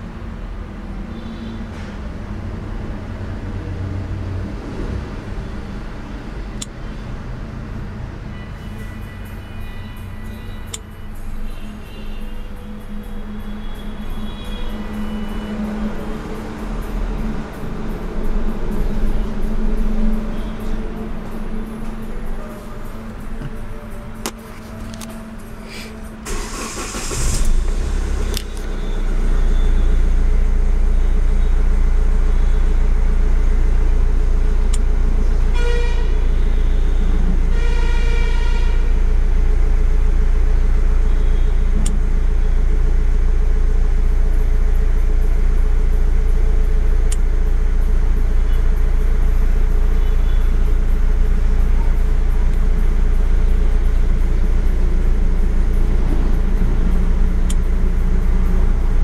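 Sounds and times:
car engine idling: 0:05.4 - 0:35.5, 0:38.9 - 0:59.0
car horn toots: 0:35.5 - 0:39.0.

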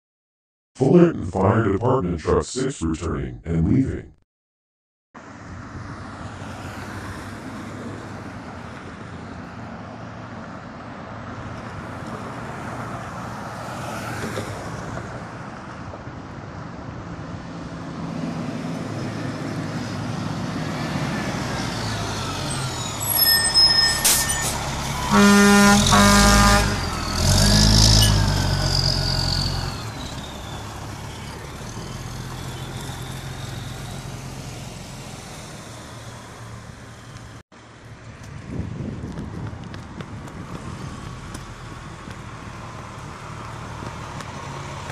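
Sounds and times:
truck diesel engine passing: 0:16.6 - 0:38.1, 0:40.1 - 0:44.9
air horn blasts: 0:25.0 - 0:27.1.

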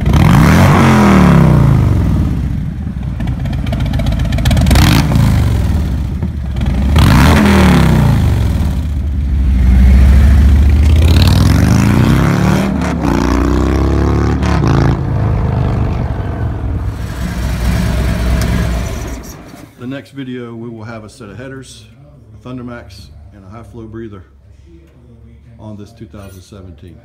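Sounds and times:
motorcycle engine revving: 0:00.0 - 0:19.7.

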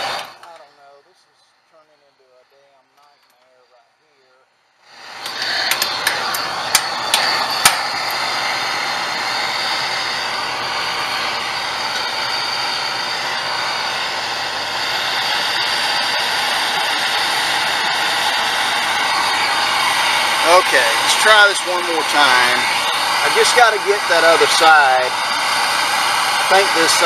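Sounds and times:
gas torch flame hissing: 0:04.8 - 0:27.0
sharp clicks: 0:05.2 - 0:07.8.

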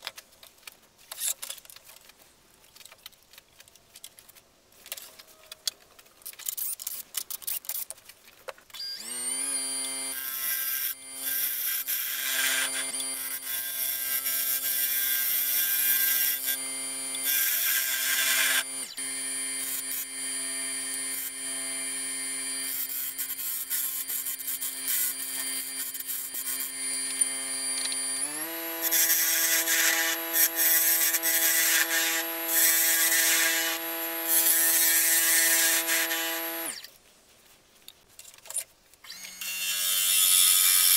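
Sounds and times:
lathe motor whine: 0:08.8 - 0:36.9
gouge cutting wood hiss: 0:22.5 - 0:27.2.

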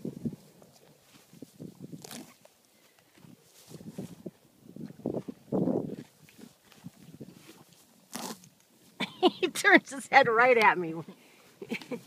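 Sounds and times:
horse tearing and crunching grass: 0:01.0 - 0:04.4, 0:05.0 - 0:08.8.

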